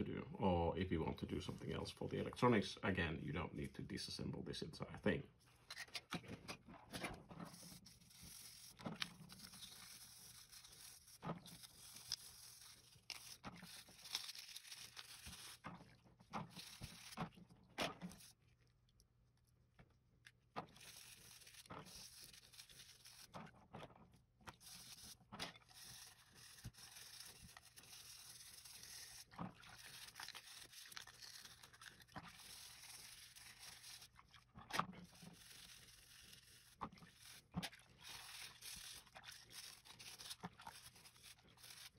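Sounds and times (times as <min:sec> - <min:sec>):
brush bristles scrubbing: 0:07.4 - 0:17.4, 0:18.0 - 0:18.4, 0:20.6 - 0:23.5, 0:24.5 - 0:41.9
water splashes: 0:27.7 - 0:41.9.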